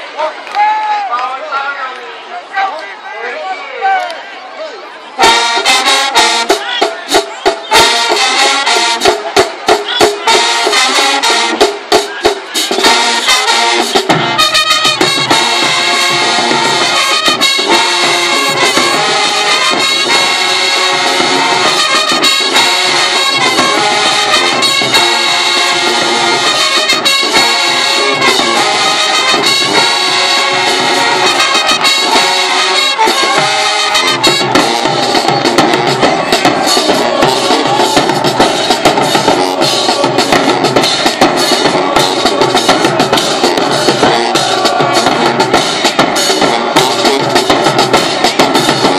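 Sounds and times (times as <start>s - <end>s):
marching band playing: 4.8s - 48.9s
brass section playing a tune: 5.1s - 48.9s
drums: 5.2s - 48.9s.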